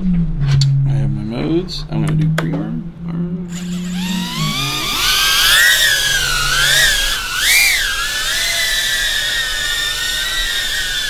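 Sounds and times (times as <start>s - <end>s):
quadcopter motors whining: 3.5s - 11.0s.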